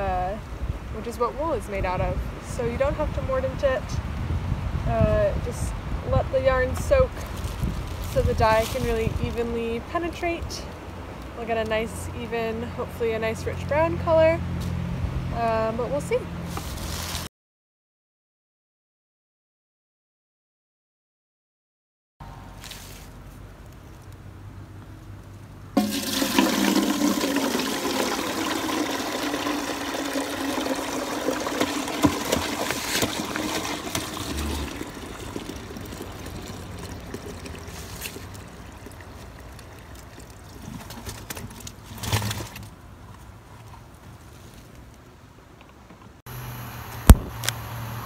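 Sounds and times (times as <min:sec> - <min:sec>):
walnuts and water splashing into pot: 0:25.8 - 0:41.3
water gushing from bucket: 0:25.8 - 0:42.7.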